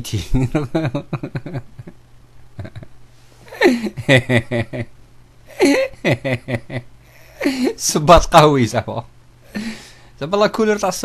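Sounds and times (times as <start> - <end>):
man talking: 0.0 - 0.7, 7.4 - 9.1, 10.2 - 11.0.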